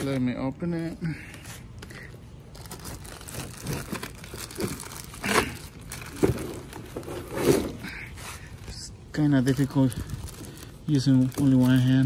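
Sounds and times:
plastic wrap crinkling: 1.7s - 7.4s, 8.6s - 12.0s.

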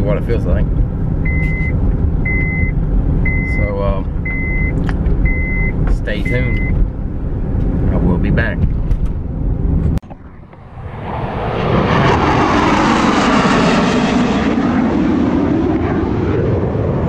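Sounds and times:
airplane passing overhead: 8.9s - 17.0s.

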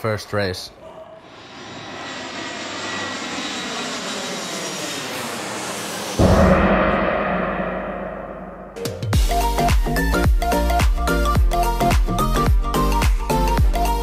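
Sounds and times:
jet airplane flying overhead: 1.2s - 8.3s
deep boom: 6.2s - 9.3s.

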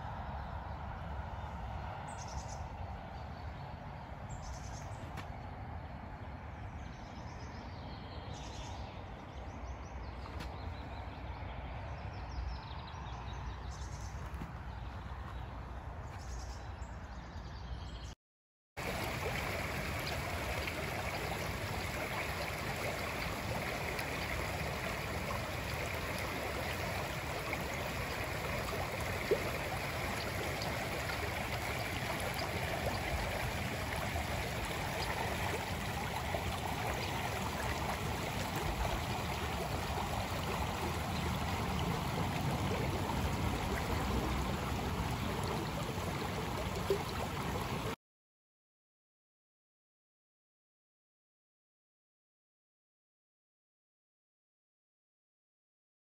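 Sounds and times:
stream babbling over stones: 18.8s - 48.0s.

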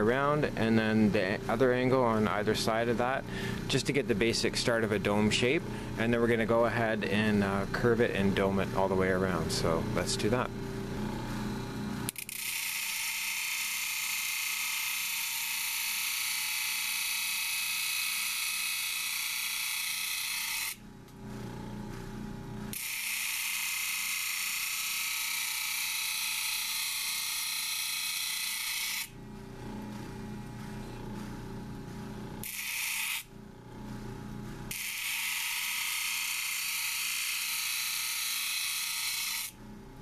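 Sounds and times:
machine hum: 0.0s - 12.8s, 18.9s - 23.1s, 28.2s - 40.0s.

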